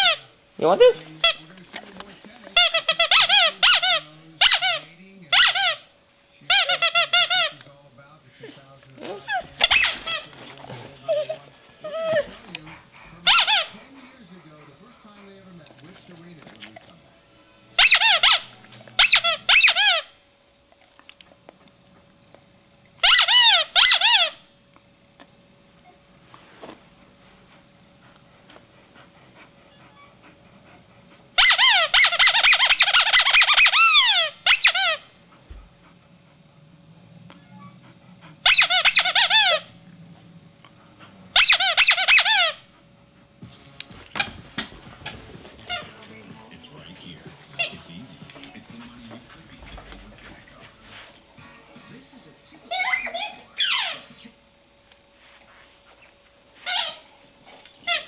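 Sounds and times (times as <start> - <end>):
rubber squeaky toy squeaks: 2.6 - 5.8, 9.3 - 10.3, 17.8 - 20.0, 31.4 - 35.0, 38.5 - 39.6, 41.4 - 42.6.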